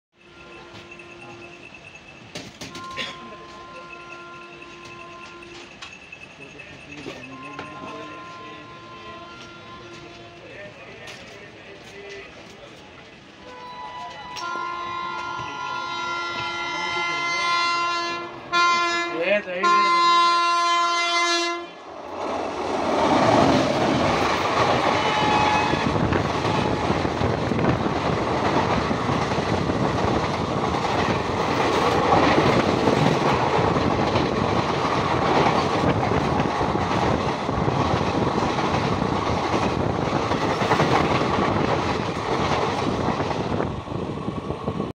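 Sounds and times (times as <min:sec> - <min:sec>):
multi-tone train horn: 0:00.1 - 0:01.8, 0:02.6 - 0:05.9, 0:07.3 - 0:10.7, 0:13.4 - 0:21.8, 0:24.6 - 0:27.0
passing train coaches rumbling: 0:00.1 - 0:44.9
train wheel clatter: 0:00.2 - 0:15.6, 0:22.1 - 0:44.9.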